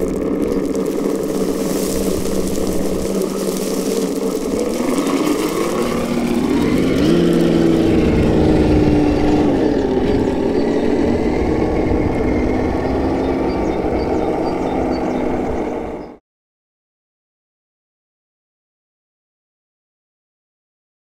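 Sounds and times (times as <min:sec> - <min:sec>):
toy car motor hum: 0:00.0 - 0:10.9.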